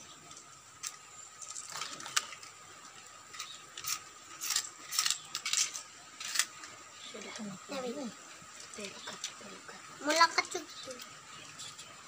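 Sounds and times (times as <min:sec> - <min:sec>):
plastic parts clicking: 0:03.3 - 0:06.5.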